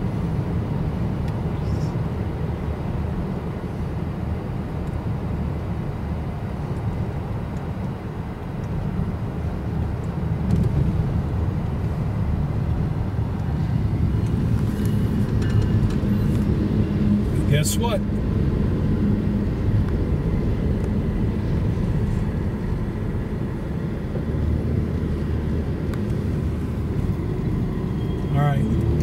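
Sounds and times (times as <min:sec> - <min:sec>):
car road and engine rumble: 0:00.0 - 0:29.0
diesel locomotive passing: 0:12.2 - 0:29.0.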